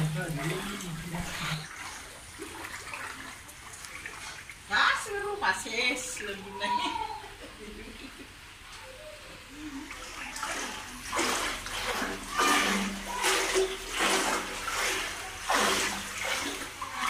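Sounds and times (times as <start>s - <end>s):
footsteps splashing through water: 0.0s - 4.8s, 9.9s - 17.0s.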